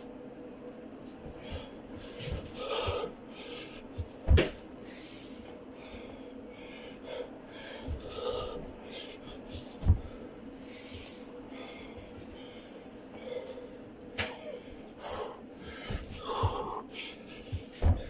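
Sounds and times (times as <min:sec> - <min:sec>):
man breathing heavily: 0:01.2 - 0:18.0
thuds on carpeted floor: 0:04.0 - 0:04.6, 0:09.8 - 0:10.2, 0:17.5 - 0:18.0.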